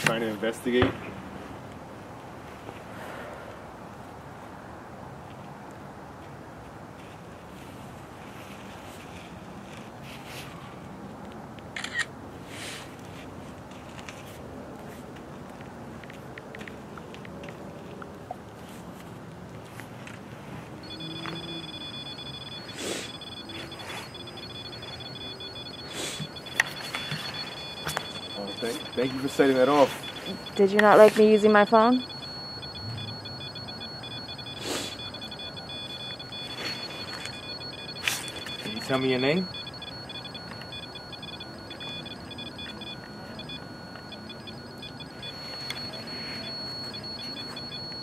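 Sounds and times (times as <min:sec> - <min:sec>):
high-pitched electronic alarm tone: 0:20.8 - 0:48.0
high-pitched whine: 0:20.8 - 0:48.0.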